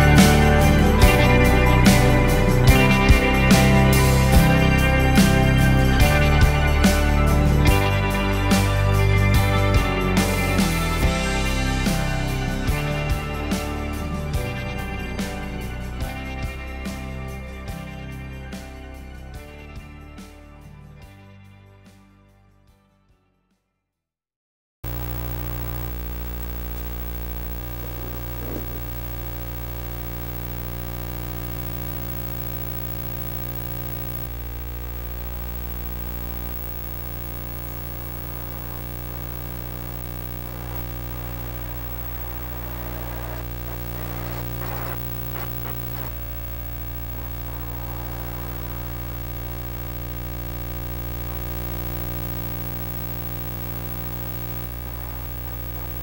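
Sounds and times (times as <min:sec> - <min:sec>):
guitar music with bass: 0:00.0 - 0:20.0.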